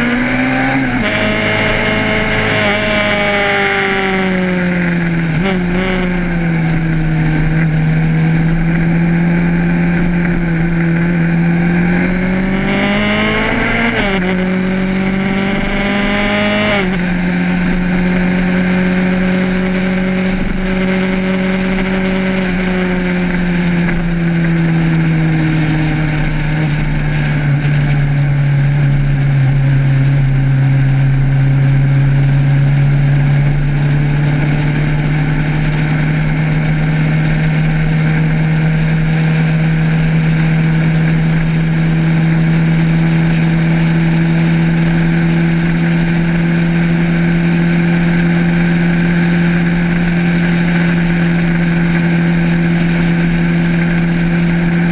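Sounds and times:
motorcycle engine humming: 0.0 - 54.9
wind and road noise: 0.0 - 54.9.

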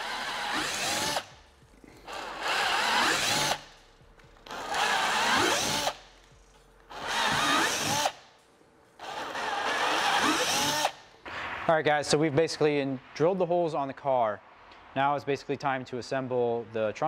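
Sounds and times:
cordless drill boring through plastic: 0.0 - 1.4, 2.0 - 3.7, 4.5 - 6.0, 6.9 - 8.2, 9.0 - 11.0.

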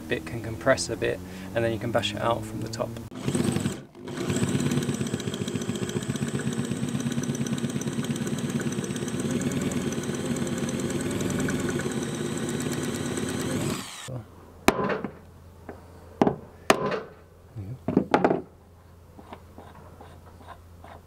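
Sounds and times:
electric drill boring into metal: 3.1 - 14.1.

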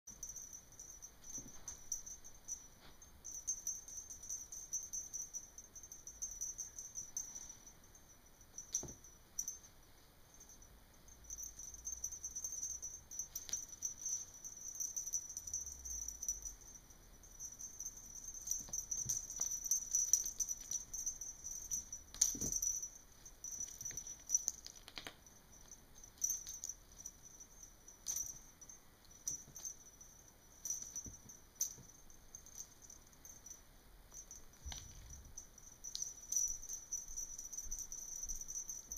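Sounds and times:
steady high-pitched hiss: 0.1 - 38.9.

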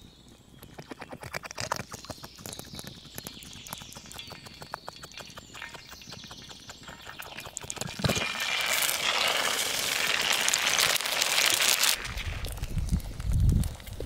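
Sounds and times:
small clicks and crackles: 0.6 - 14.0
egg sizzling in hot pan: 3.5 - 14.0.

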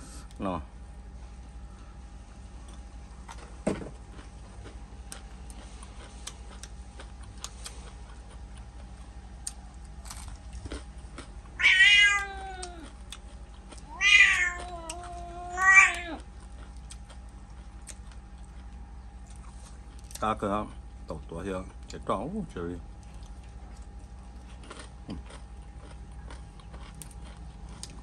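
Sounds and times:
cat meowing: 11.6 - 12.9, 13.8 - 16.2.

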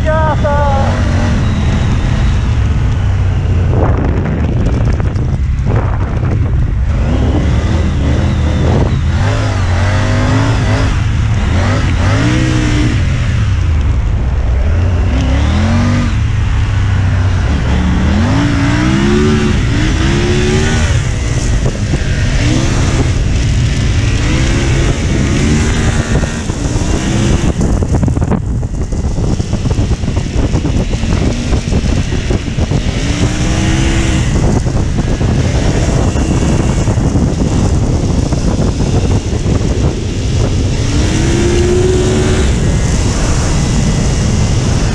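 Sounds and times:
motorcycle engine revving: 0.0 - 44.9.

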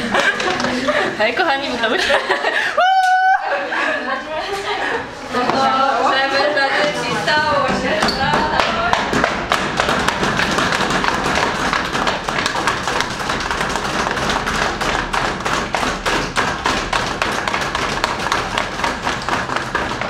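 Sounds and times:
rhythmic banging and stomping: 0.0 - 2.6, 7.2 - 20.0.

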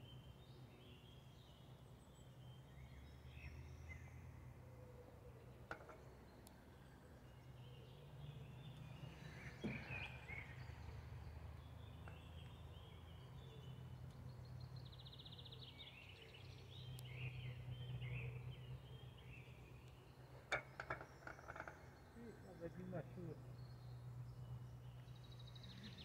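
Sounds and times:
birds chirping: 4.8 - 26.0
sharp clicks and knocks: 20.5 - 22.0.

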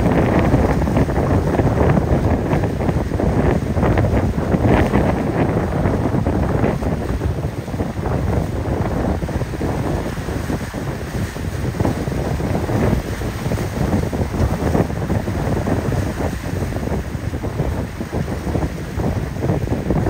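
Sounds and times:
choppy sea and surf: 0.0 - 20.0
waves breaking on rocks: 0.0 - 20.0
wind buffeting microphone: 0.0 - 20.0.

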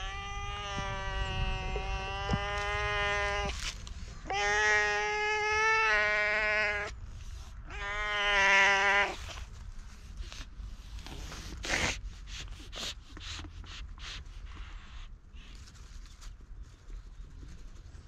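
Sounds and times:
cat meowing: 0.0 - 3.6, 4.2 - 6.9, 7.7 - 9.3.

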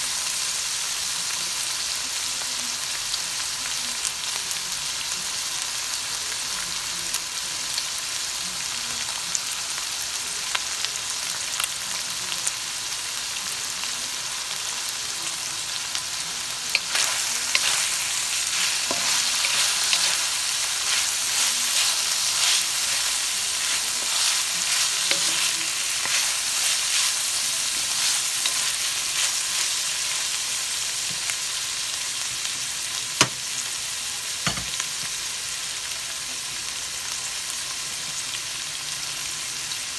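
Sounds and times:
food sizzling in a wok: 0.0 - 39.9
wooden spatula scraping: 16.7 - 29.8.

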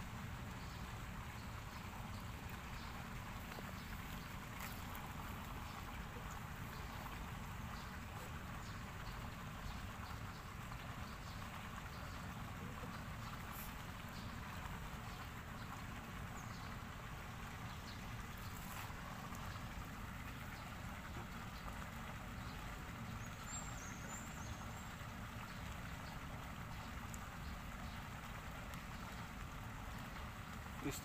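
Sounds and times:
faint clicks: 28.6 - 29.0.

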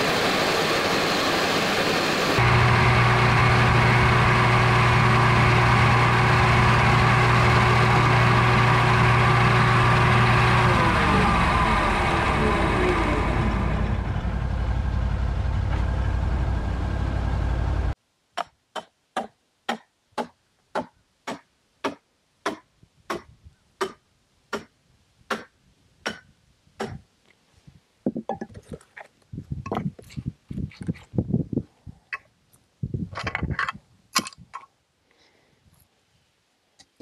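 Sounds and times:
chainsaw mill engine cutting: 2.1 - 14.8
knocks and scrapes: 28.1 - 31.2, 33.1 - 34.7.

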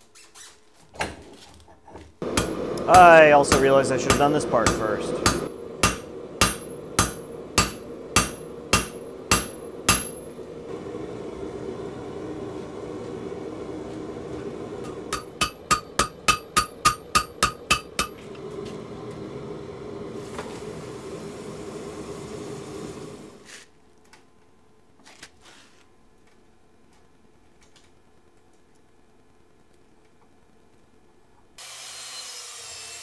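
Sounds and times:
hot steel quenching hiss: 2.2 - 12.5, 14.4 - 23.6
low rumble of gas forge: 2.2 - 23.6
hammer ringing on anvil: 2.4 - 10.4, 15.1 - 18.2.

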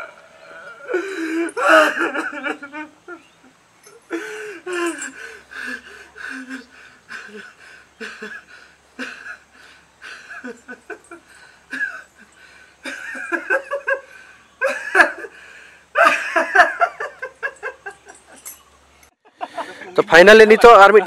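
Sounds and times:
man sobbing: 0.5 - 3.2, 4.0 - 18.2.

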